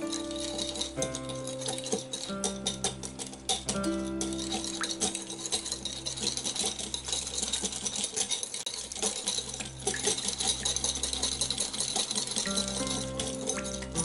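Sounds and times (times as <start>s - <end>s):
whisk rattling against glass bowl: 0.0s - 14.0s.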